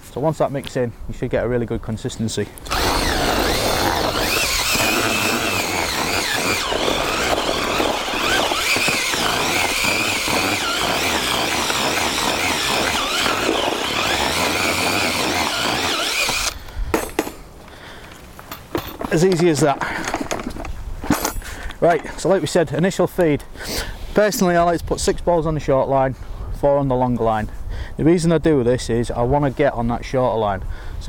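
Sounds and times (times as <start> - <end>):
power drill mixing whine: 2.6 - 16.6.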